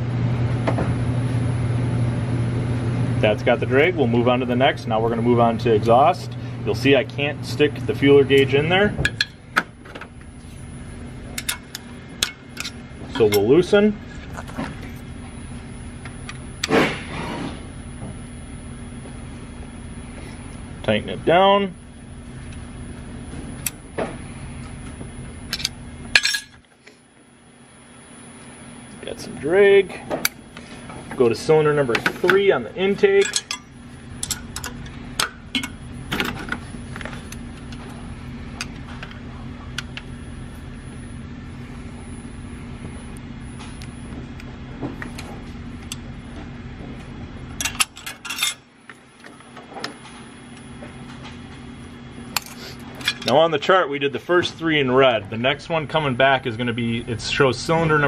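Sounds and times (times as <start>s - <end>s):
low steady hum: 0.0s - 58.0s
hand tools clinking on metal: 33.0s - 34.8s.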